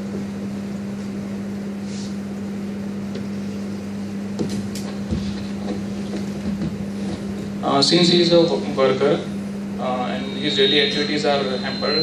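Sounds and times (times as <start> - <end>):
steady low hum: 0.0 - 12.0
rushing room tone: 2.4 - 12.0.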